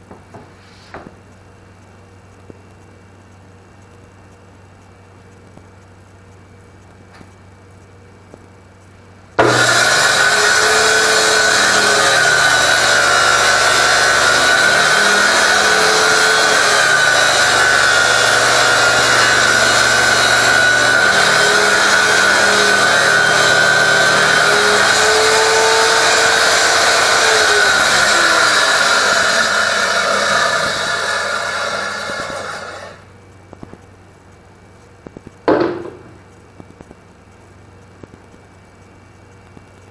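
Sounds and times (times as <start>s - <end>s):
saw blade winding down: 9.4s - 33.0s
table saw cutting wood: 9.4s - 33.0s
short knock: 35.5s - 36.2s.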